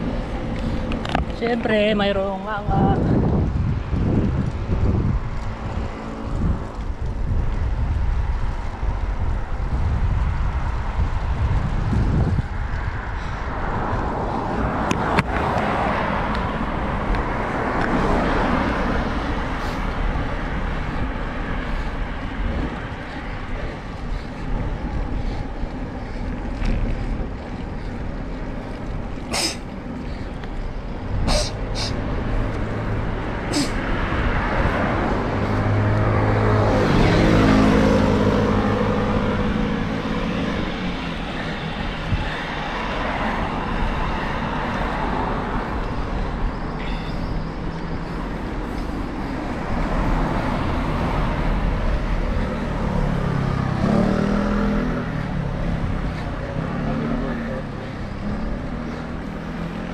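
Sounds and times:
wind buffeting: 0.0 - 56.8
car passing: 0.0 - 59.9
road noise: 0.0 - 59.9.

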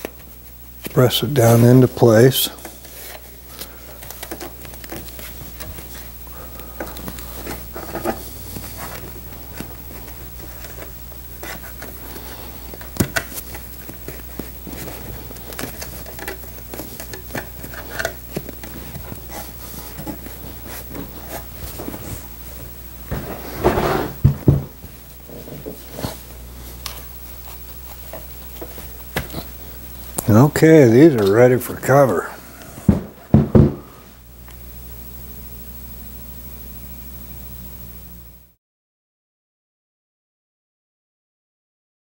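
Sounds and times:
hands rustling foam padding: 0.0 - 31.4
low steady hum: 0.0 - 38.6.

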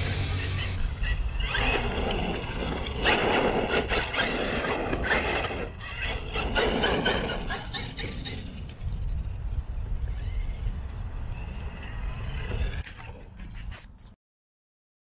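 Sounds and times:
electric motor whining: 0.0 - 8.1
tyres rushing over ground: 0.0 - 8.8.

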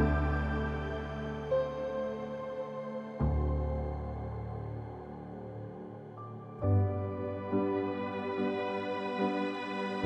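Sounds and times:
soft ambient music with chords: 0.0 - 10.0.

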